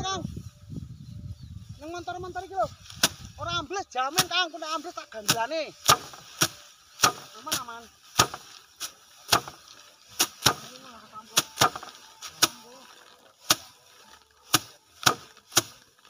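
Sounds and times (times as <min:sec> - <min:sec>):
rice sheaves slapping wooden rack: 0:02.8 - 0:03.3, 0:04.0 - 0:16.0.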